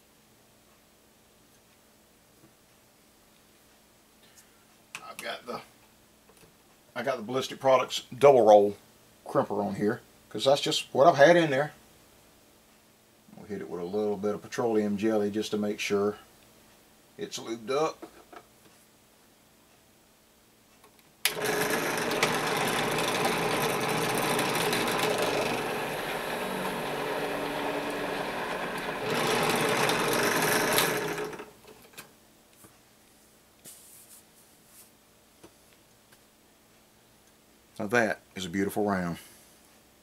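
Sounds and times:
drill press motor running: 21.3s - 31.6s.

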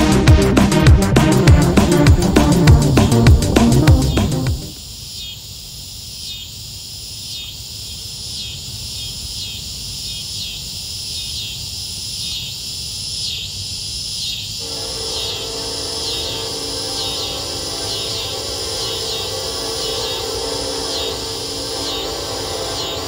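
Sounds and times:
insects chirping in pulses: 1.7s - 23.0s
sustained chord of tones: 14.6s - 23.0s.

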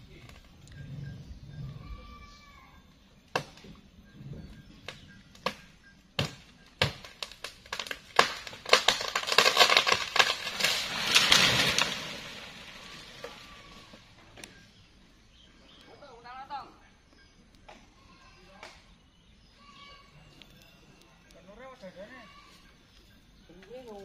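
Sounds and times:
sharp woody cracks: 4.9s - 13.4s
branches snapping and falling: 6.2s - 14.0s.

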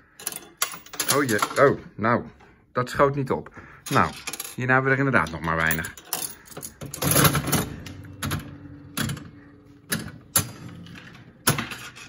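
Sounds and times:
slot machine reels clunking: 4.0s - 12.0s
slot machine reels whirring: 5.9s - 12.0s.

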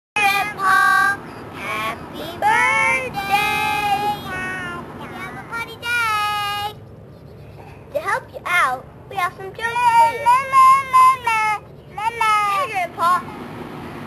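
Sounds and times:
children singing: 0.2s - 4.8s.

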